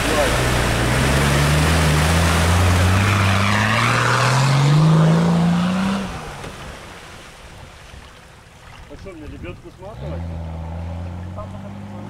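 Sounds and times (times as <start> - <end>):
suv engine revving: 0.0 - 6.7, 9.9 - 12.0
water rushing and splashing: 0.0 - 12.0.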